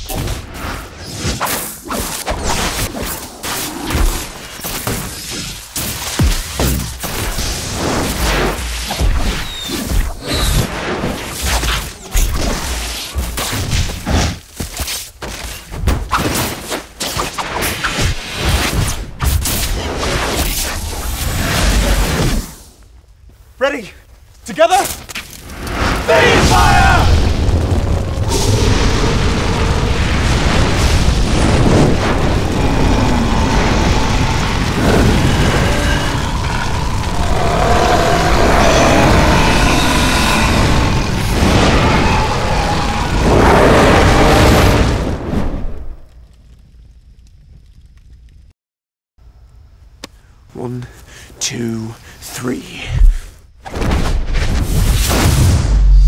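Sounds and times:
deep fire rumble with booms: 0:25.4 - 0:48.5
sweeping whooshes: 0:28.3 - 0:44.5.

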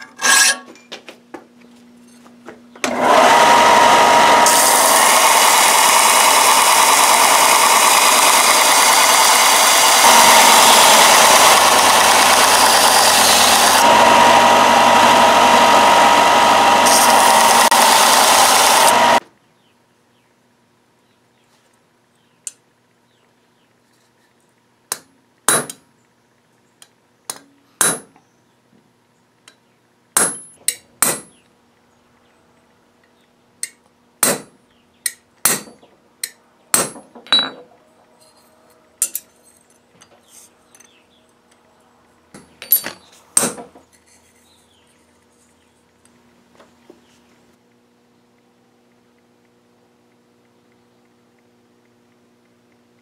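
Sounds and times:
hammer striking metal stamp: 0:24.9 - 0:25.8, 0:27.3 - 0:28.2, 0:30.2 - 0:31.4, 0:34.2 - 0:34.6, 0:35.4 - 0:35.8, 0:36.7 - 0:37.6
faint steady hum: 0:43.9 - 0:53.0.

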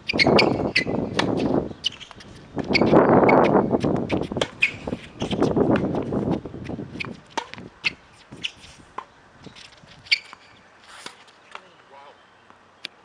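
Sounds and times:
racket hitting tennis ball: 0:00.1 - 0:11.8
ball bouncing: 0:07.0 - 0:07.7
birds chirping: 0:09.0 - 0:13.0.

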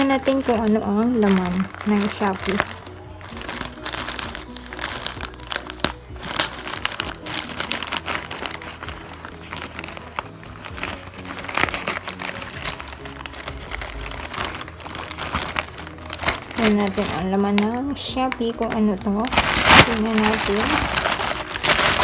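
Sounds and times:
faint music: 0:00.0 - 0:22.0
plastic bag crinkling: 0:00.0 - 0:22.0.

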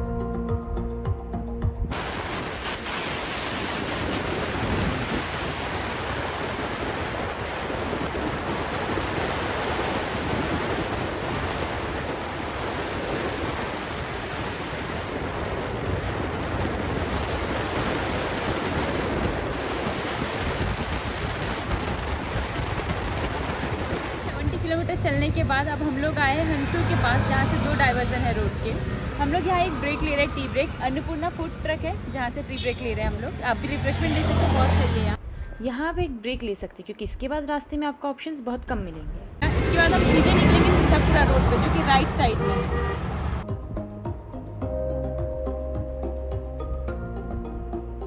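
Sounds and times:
wind rush on microphone: 0:01.7 - 0:36.2
road noise: 0:01.9 - 0:35.7, 0:38.8 - 0:48.0.

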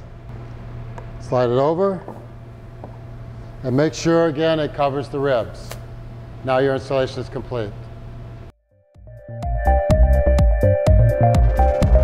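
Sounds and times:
electronic music with steady beat: 0:09.0 - 0:12.0.

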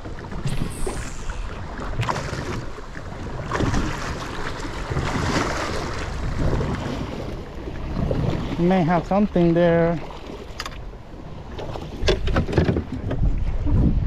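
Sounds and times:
wind buffeting microphone: 0:00.0 - 0:08.6, 0:11.9 - 0:14.0
waves lapping against boat hull: 0:00.0 - 0:14.0.

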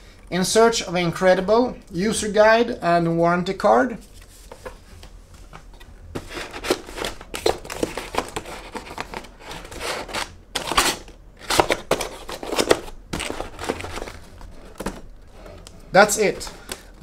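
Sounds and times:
cardboard box scraping and rustling: 0:06.2 - 0:15.6.

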